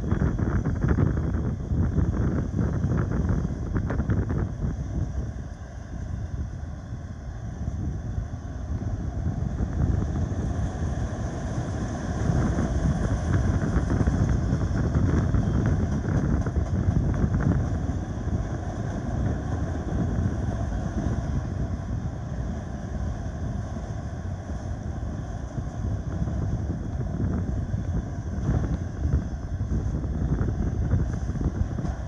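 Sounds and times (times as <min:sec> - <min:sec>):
freight train rumbling: 0:00.0 - 0:32.0
train wheels clattering: 0:11.4 - 0:21.3.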